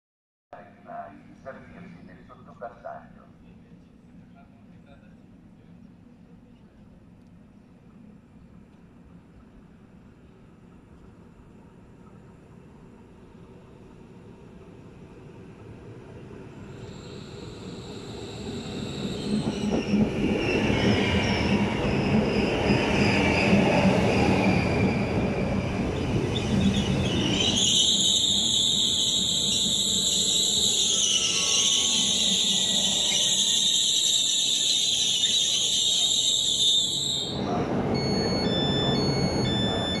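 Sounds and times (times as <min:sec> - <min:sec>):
high-pitched brake squeal: 0:16.7 - 0:40.0
train wheels rumbling: 0:17.6 - 0:40.0
short electronic door beeps: 0:33.3 - 0:40.0.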